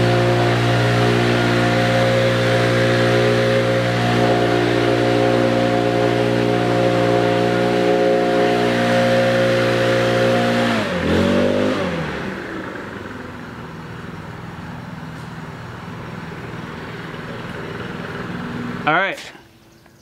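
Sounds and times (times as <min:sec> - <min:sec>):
leaf blower engine running: 0:00.0 - 0:19.7.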